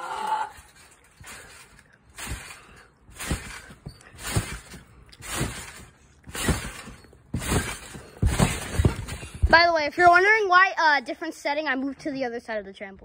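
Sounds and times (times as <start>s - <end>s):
trampoline springs jangling: 0.2s - 10.4s
trampoline mat thumping: 0.7s - 10.2s.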